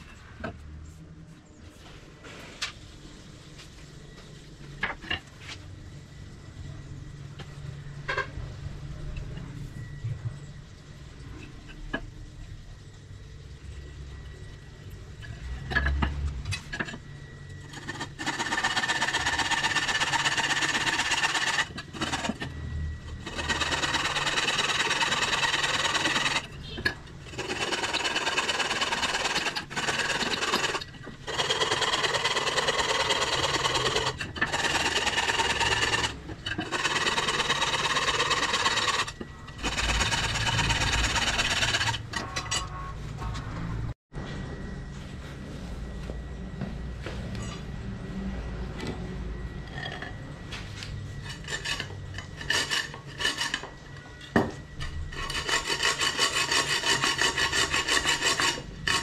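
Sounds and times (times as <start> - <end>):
power tool running: 17.6 - 42.6.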